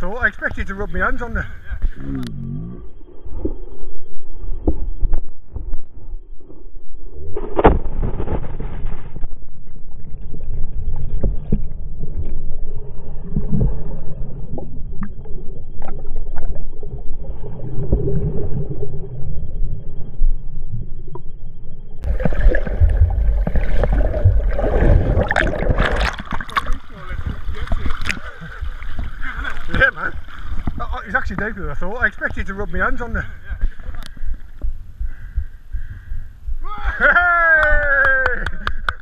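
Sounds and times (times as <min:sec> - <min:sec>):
muffled underwater rumbling and gurgling: 0:00.0 - 0:38.0
camera plunging into water: 0:07.3 - 0:12.5, 0:22.0 - 0:31.5
splashing of swimming strokes: 0:22.0 - 0:30.7.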